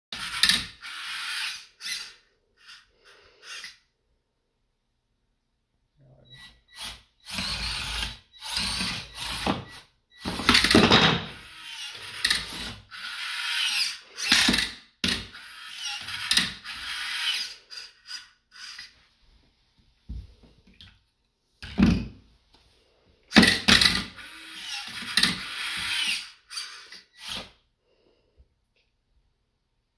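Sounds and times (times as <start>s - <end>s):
small electric motors whirring: 0.2s - 3.9s, 6.4s - 19.0s, 23.3s - 27.6s.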